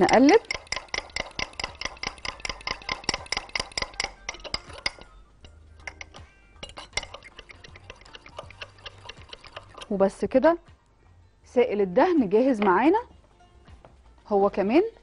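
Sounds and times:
fork clinking against glass cup: 0:00.0 - 0:09.9.

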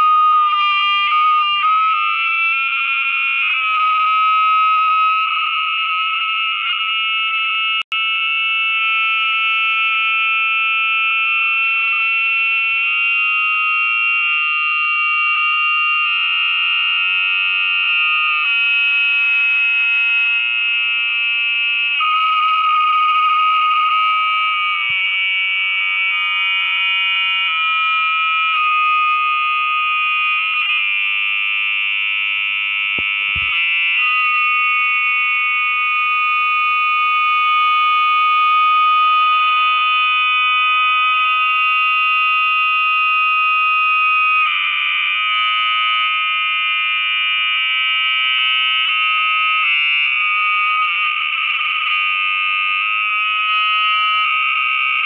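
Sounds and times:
audio feedback whine: 0:00.0 - 0:55.0.

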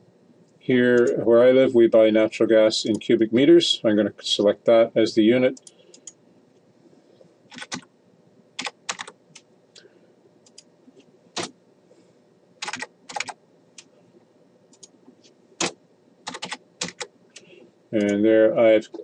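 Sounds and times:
computer keyboard keystrokes: 0:07.5 - 0:07.9, 0:08.6 - 0:09.4, 0:12.6 - 0:13.9, 0:15.6 - 0:18.2.

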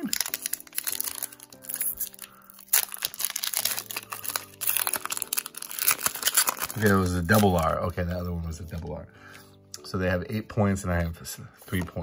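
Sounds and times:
foil wrapper crinkling and tearing: 0:00.0 - 0:08.8
background music: 0:00.0 - 0:12.0.

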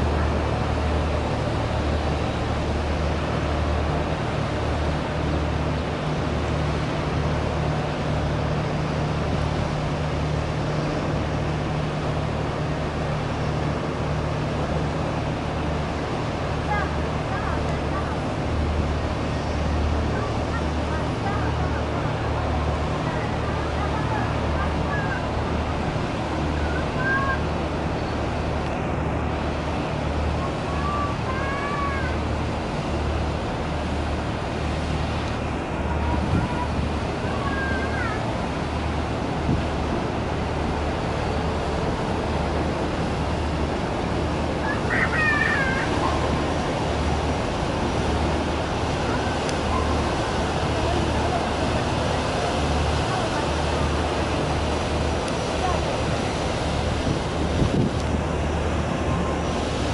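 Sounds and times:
churned water rushing: 0:00.0 - 0:59.9
diesel engines humming: 0:00.0 - 0:59.9.

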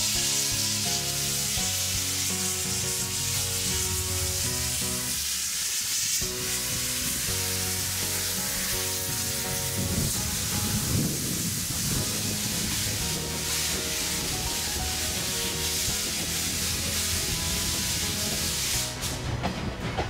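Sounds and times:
background music melody: 0:00.0 - 0:05.2, 0:06.2 - 0:20.0
steam hissing from locomotive: 0:00.0 - 0:20.0.

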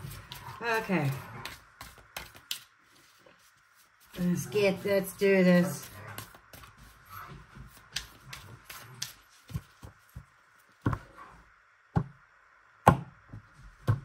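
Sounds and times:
cards being shuffled: 0:00.0 - 0:04.4, 0:05.8 - 0:10.3.

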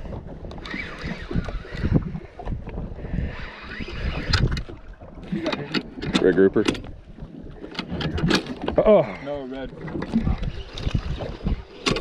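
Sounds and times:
wind rumbling on microphone: 0:00.0 - 0:12.0
fishing reel cranking: 0:00.5 - 0:02.2, 0:03.3 - 0:04.7.

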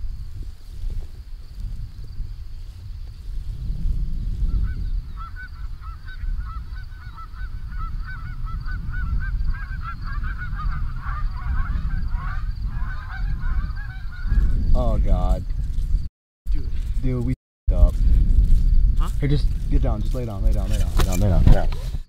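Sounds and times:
wind rumbling on microphone: 0:00.0 - 0:22.0
geese honking: 0:04.6 - 0:14.6.

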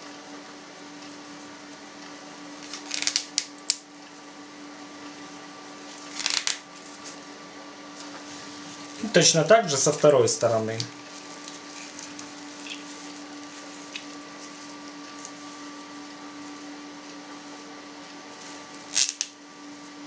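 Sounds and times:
steady electrical hum: 0:00.0 - 0:20.0
hands rustling with twine: 0:11.0 - 0:15.6.

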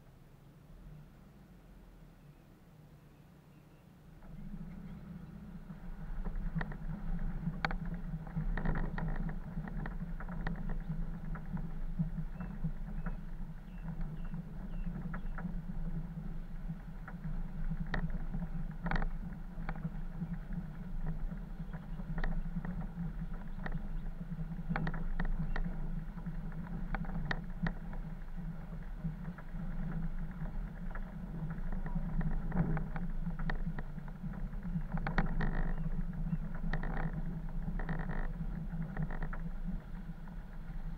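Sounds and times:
vehicle engine drone: 0:00.0 - 0:40.9
knocks and rattles of vehicle: 0:04.1 - 0:40.9.

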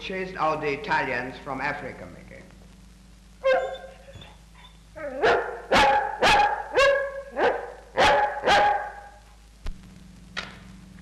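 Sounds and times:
dog barking: 0:03.4 - 0:04.4, 0:05.1 - 0:09.2.

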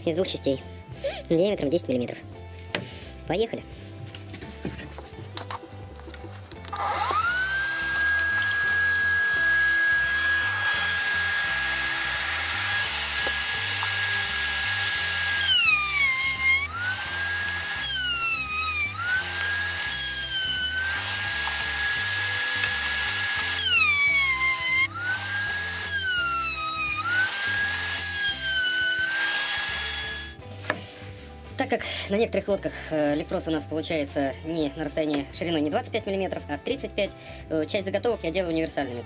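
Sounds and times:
wood router whining: 0:06.6 - 0:30.4
router bit cutting wood: 0:06.7 - 0:30.4.

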